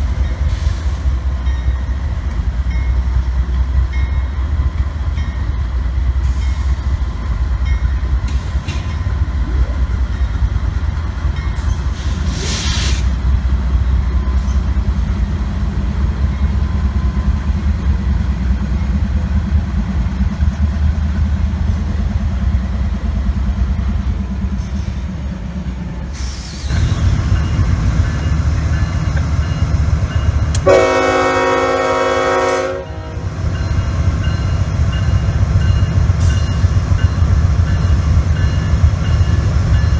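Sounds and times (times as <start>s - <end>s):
freight train rumbling past: 0.0s - 39.9s
brief hiss: 12.0s - 13.2s
locomotive air horn chord: 30.6s - 33.3s.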